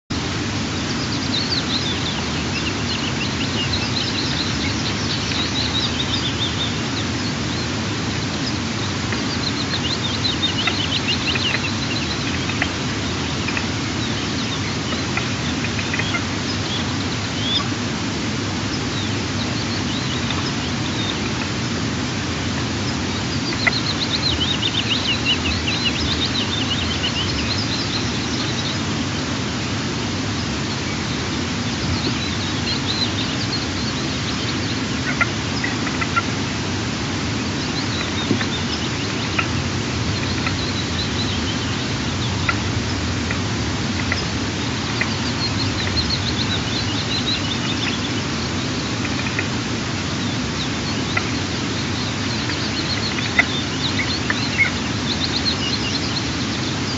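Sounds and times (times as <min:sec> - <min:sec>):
outdoor hiss: 0:00.1 - 0:56.9
twittering bird calls: 0:00.1 - 0:56.9.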